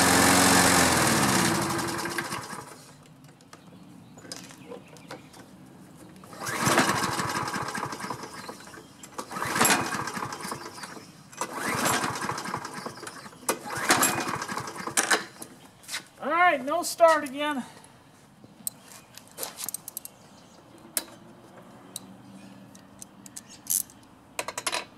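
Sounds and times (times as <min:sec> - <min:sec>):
mower engine running down: 0:00.0 - 0:02.8, 0:06.3 - 0:15.0
mower engine cranking: 0:00.0 - 0:02.9, 0:06.2 - 0:15.4.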